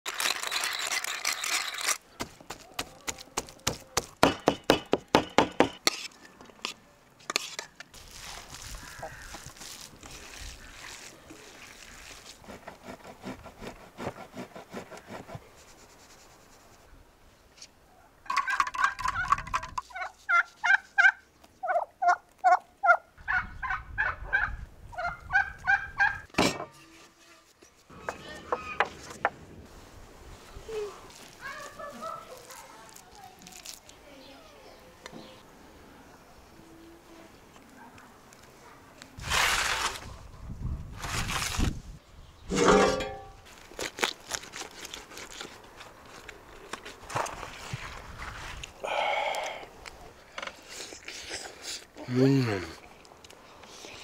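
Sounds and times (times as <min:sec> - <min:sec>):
fowl calling: 0:08.7 - 0:09.5
handling sounds: 0:42.5 - 0:48.7.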